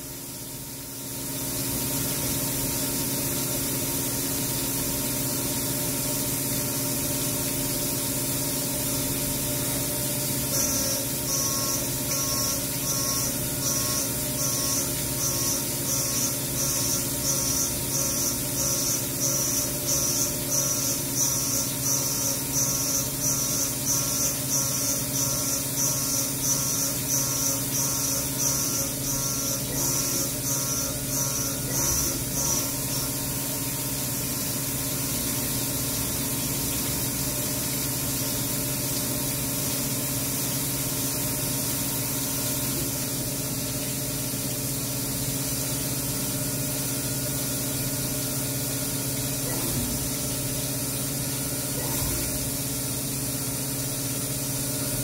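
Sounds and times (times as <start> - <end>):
milling machine spindle running: 0.0 - 38.6, 40.0 - 55.0
coolant spray: 0.1 - 55.0
high cutting whine: 9.4 - 34.7.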